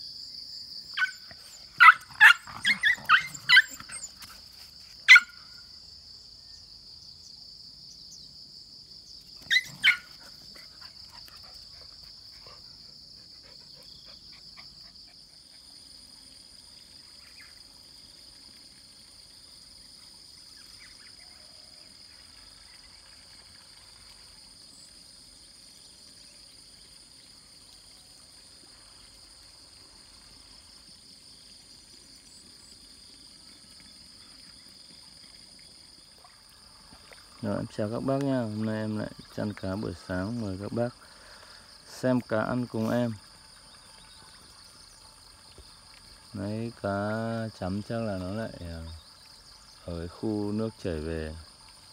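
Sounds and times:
chorus of insects: 0.0s - 51.9s
higher insect trill: 0.0s - 51.9s
dog barking: 1.8s - 3.8s, 5.1s - 5.4s, 9.5s - 10.1s.

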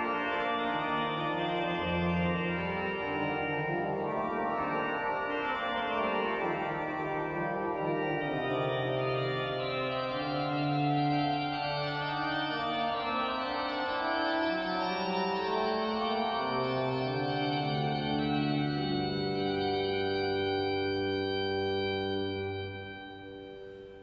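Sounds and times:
pipe organ playing: 0.0s - 24.0s.

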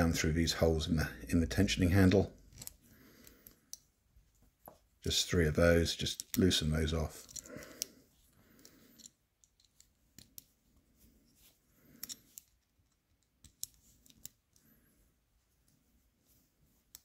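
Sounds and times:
plastic and metal parts clicking: 12.0s - 14.6s
soft plastic rustle: 13.7s - 17.0s.

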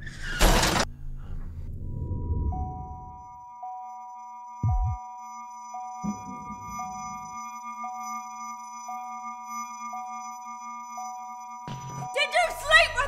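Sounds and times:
low hum: 1.3s - 3.4s, 4.6s - 5.0s, 6.0s - 8.0s
electronic sine tones: 1.9s - 12.2s.

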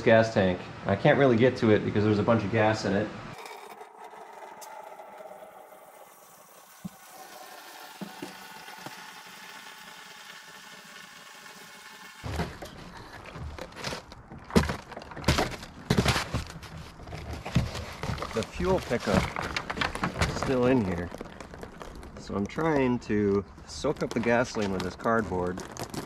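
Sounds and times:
handling plastic fuel tank: 12.2s - 26.0s
rustling: 12.2s - 26.0s.

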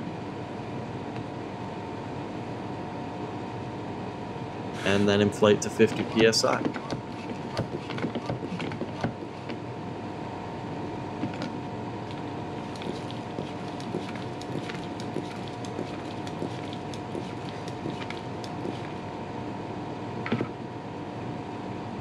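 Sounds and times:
steady hum: 0.0s - 21.1s
hand pump strokes: 4.8s - 9.6s, 12.1s - 19.0s.

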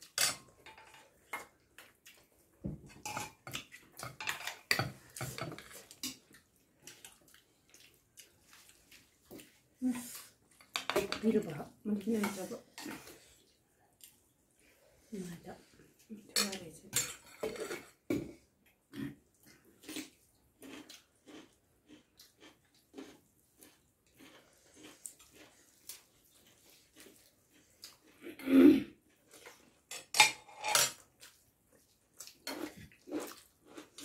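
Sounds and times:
chewing and lip-smacking: 1.4s - 2.6s, 5.7s - 10.7s, 18.6s - 28.2s, 31.1s - 34.0s.

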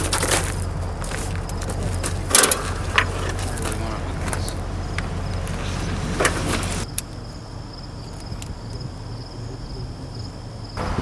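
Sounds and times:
engine idling: 0.0s - 11.0s
metal clanks: 1.7s - 6.8s.

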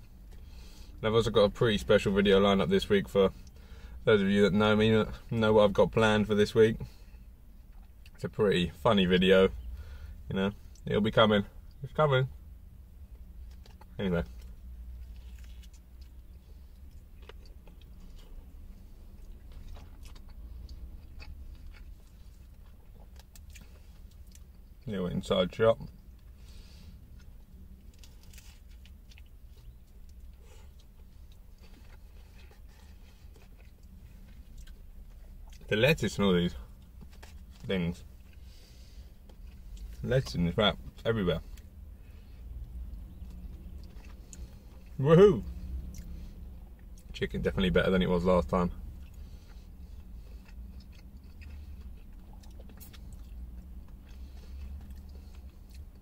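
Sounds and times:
steady low hum: 0.0s - 56.0s
steady low rumble: 0.0s - 56.0s
person chewing food: 13.2s - 24.8s, 25.8s - 35.7s, 41.5s - 47.1s, 48.8s - 56.0s
small crunches: 25.8s - 36.0s.

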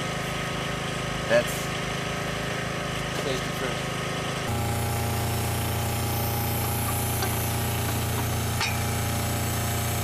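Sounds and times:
power unit engine hum: 0.0s - 10.0s
hydraulic hammer hammering: 4.5s - 10.0s.

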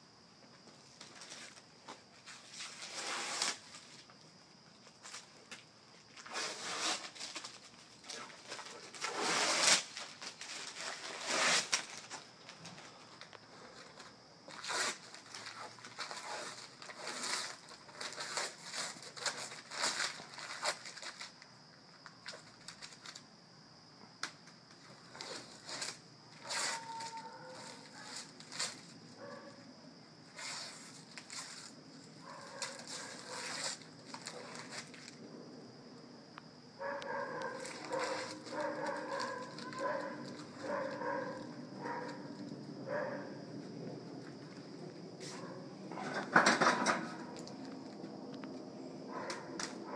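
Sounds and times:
paper ripping and rustling: 6.2s - 12.2s, 14.5s - 21.3s, 32.5s - 35.2s, 37.6s - 41.2s.

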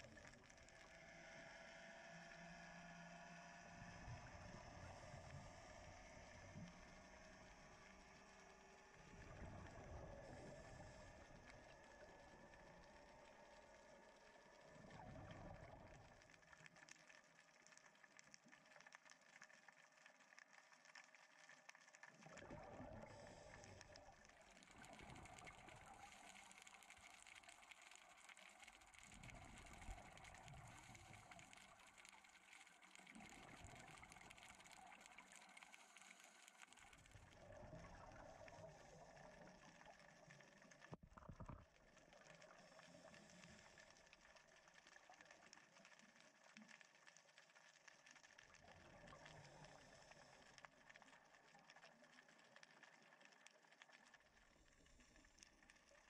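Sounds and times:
fine crackle: 0.0s - 56.0s
regulator exhaust bubbles underwater: 0.0s - 56.0s.

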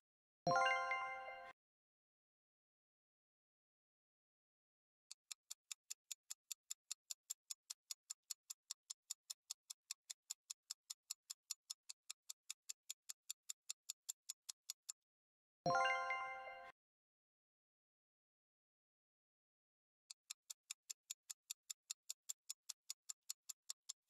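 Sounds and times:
timer ticking: 20.1s - 24.0s.

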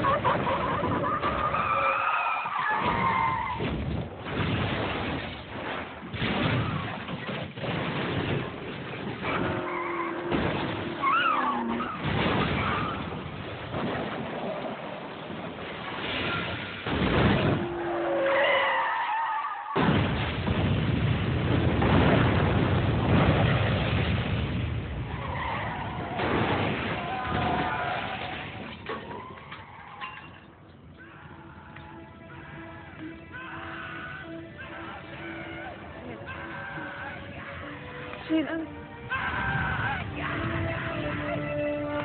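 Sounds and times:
tyres screeching in a skid: 0.0s - 3.7s, 9.2s - 13.2s
loud crash blast: 2.8s - 9.4s, 12.0s - 14.4s, 15.5s - 17.8s, 19.8s - 29.3s
tyres squealing: 9.3s - 13.1s
fire roaring: 19.8s - 29.6s.

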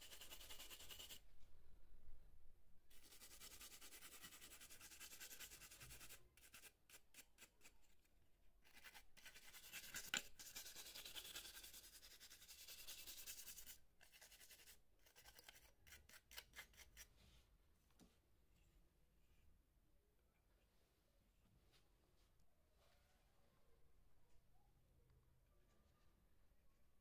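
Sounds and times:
faint rubbing on circuit board: 0.0s - 1.3s, 2.9s - 17.5s.

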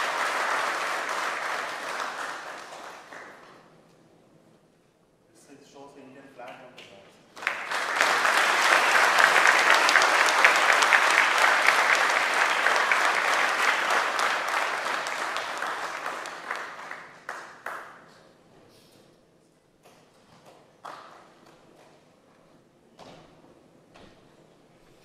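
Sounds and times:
audience applauding: 0.0s - 3.7s, 7.4s - 18.2s.

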